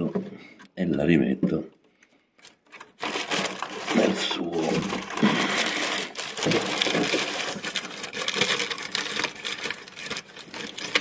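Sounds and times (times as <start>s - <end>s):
handling rustling: 2.4s - 11.0s.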